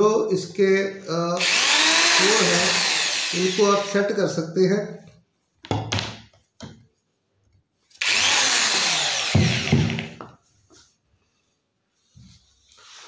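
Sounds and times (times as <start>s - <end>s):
electric drill whining: 1.4s - 3.9s, 8.0s - 10.2s.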